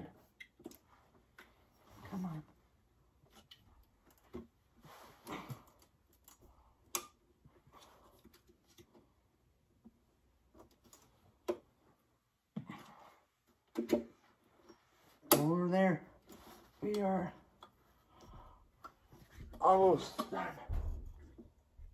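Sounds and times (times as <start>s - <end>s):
soft rustling: 16.1s - 19.6s.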